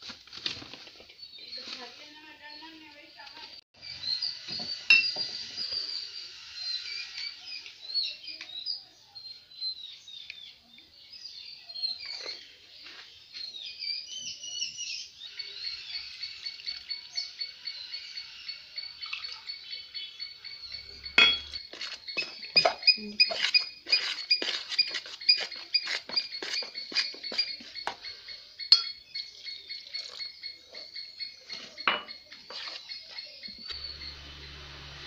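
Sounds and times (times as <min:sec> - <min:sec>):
birds chirping and singing: 0:01.2 - 0:34.9
metal pot clinks: 0:21.2 - 0:21.6, 0:28.7 - 0:29.0.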